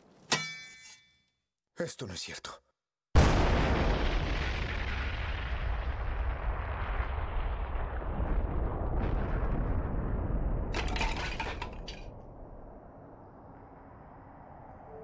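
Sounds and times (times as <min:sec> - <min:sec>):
deep explosion rumble: 0:03.2 - 0:10.8, 0:12.0 - 0:15.0.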